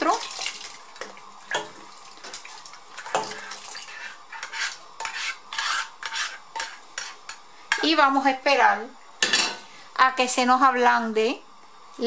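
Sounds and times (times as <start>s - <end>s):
ladle scraping a frying pan: 1.5s - 8.0s.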